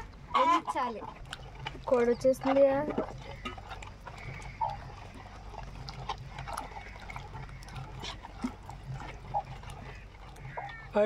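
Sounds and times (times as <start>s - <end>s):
hen clucking softly: 0.0s - 5.4s
masher squelching in a pot: 0.4s - 11.0s.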